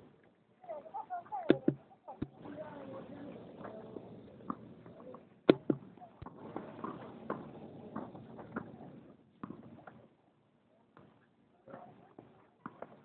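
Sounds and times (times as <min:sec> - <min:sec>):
tennis ball hit and bouncing: 0:01.4 - 0:02.5, 0:05.5 - 0:08.8.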